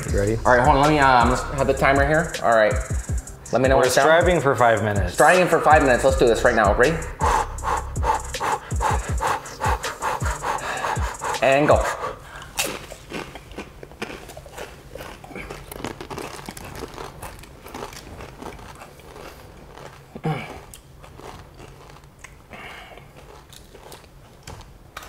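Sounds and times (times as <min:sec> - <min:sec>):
chip crunching: 0:12.5 - 0:25.0.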